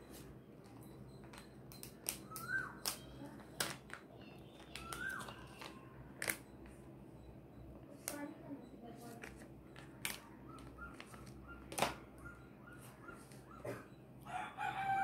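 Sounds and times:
clicks and taps of pens and caps: 0:00.6 - 0:06.8.

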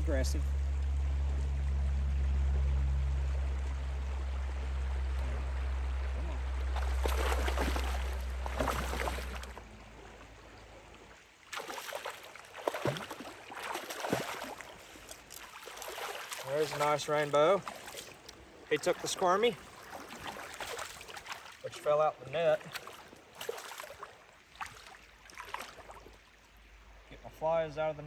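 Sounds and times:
steady low rumble: 0:00.0 - 0:11.5
river current rushing: 0:00.0 - 0:26.1
fish splashing at water surface: 0:06.1 - 0:09.6, 0:11.4 - 0:21.7, 0:22.6 - 0:26.1.

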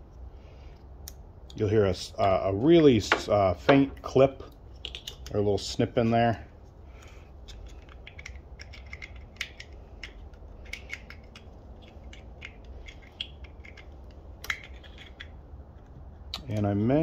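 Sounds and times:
low steady rumble: 0:00.0 - 0:17.0
plastic plugs clicking: 0:07.5 - 0:15.3.

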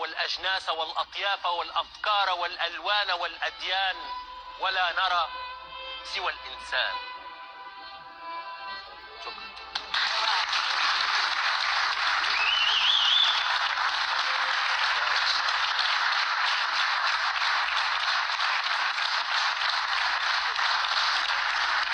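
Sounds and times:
audience applauding: 0:09.7 - 0:21.9.

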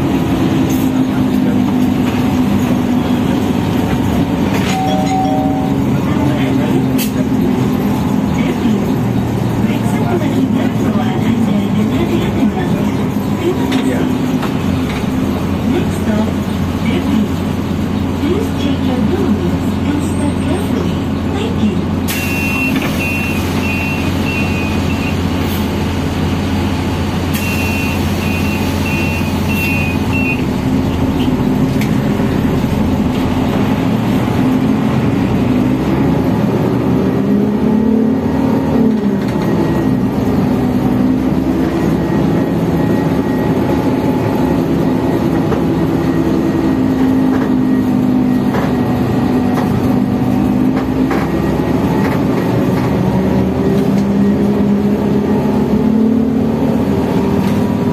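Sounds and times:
bus engine running: 0:00.0 - 0:57.9
electronic warning beeps: 0:04.7 - 0:05.8.

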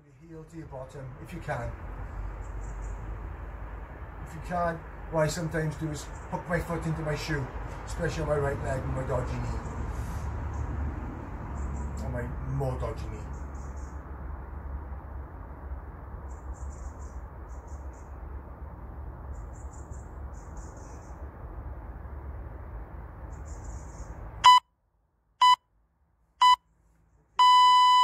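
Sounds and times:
low outdoor hum: 0:00.0 - 0:28.0
long electronic beep: 0:24.4 - 0:24.7, 0:25.4 - 0:25.6, 0:26.4 - 0:26.6, 0:27.4 - 0:28.0
short electronic beeps: 0:24.4 - 0:24.7, 0:25.4 - 0:25.6, 0:26.4 - 0:26.6, 0:27.4 - 0:28.0.

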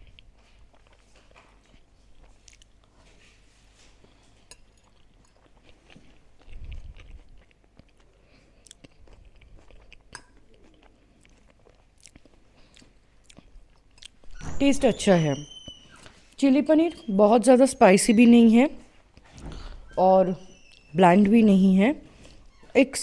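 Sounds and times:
person chewing food: 0:00.0 - 0:14.3.

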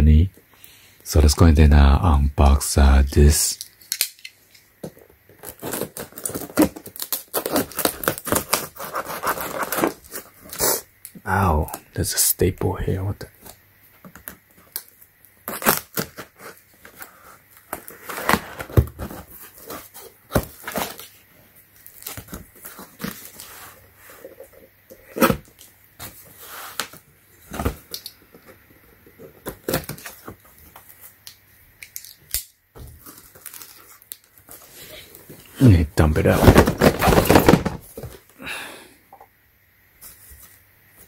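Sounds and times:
packing tape tearing: 0:05.3 - 0:10.9, 0:14.1 - 0:21.2, 0:21.8 - 0:23.6, 0:24.9 - 0:28.2, 0:29.4 - 0:34.7, 0:36.2 - 0:38.1
cardboard box being opened: 0:05.4 - 0:10.6, 0:36.2 - 0:38.2.

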